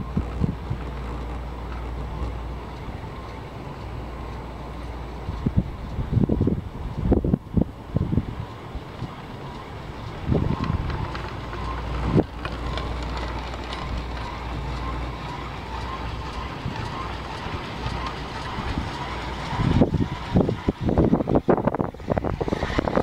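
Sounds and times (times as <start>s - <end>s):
chairlift line humming: 0.0s - 23.0s
wind on microphone: 0.0s - 23.0s.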